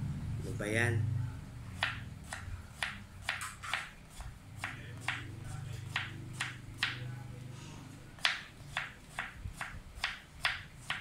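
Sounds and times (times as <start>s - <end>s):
knife chopping on board: 1.8s - 7.1s, 8.2s - 11.0s.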